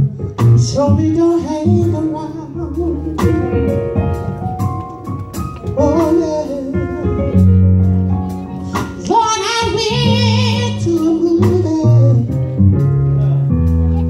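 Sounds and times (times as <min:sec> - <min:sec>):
sharp regular beats: 0:00.0 - 0:14.0
solo voice singing: 0:00.6 - 0:03.6, 0:05.7 - 0:07.6, 0:08.6 - 0:12.4.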